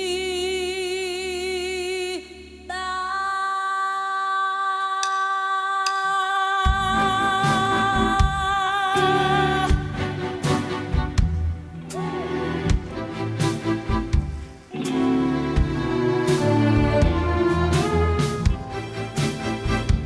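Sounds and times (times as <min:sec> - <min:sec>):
woman singing with vibrato: 0:00.0 - 0:10.5, 0:11.8 - 0:12.9
band with drums: 0:09.7 - 0:11.6, 0:12.6 - 0:20.0.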